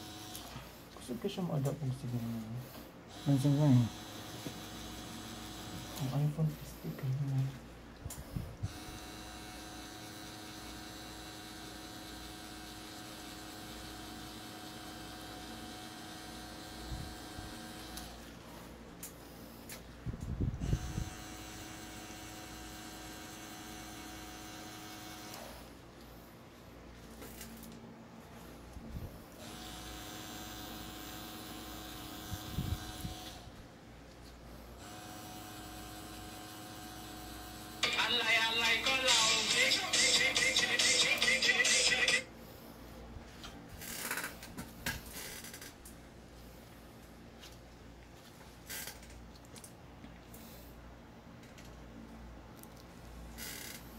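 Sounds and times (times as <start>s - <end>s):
tattoo machine humming: 0.0s - 0.6s, 3.1s - 6.3s, 8.6s - 18.3s, 20.6s - 25.8s, 29.4s - 33.6s, 34.8s - 39.4s, 45.1s - 45.8s, 53.4s - 53.9s.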